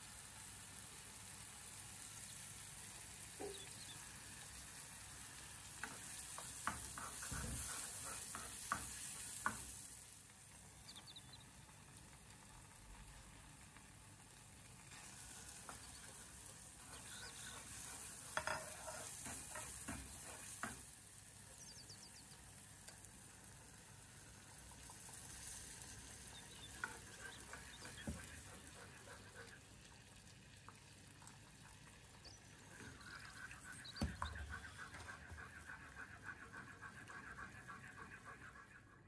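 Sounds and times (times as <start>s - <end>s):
food sizzling in oil: 0.0s - 10.8s, 11.4s - 34.0s
utensil knocking and scraping pan: 16.8s - 20.9s.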